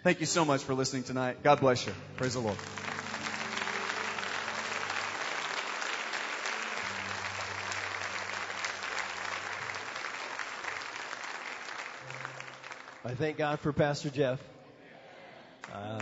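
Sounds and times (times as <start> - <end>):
congregation applauding: 1.7 - 13.8.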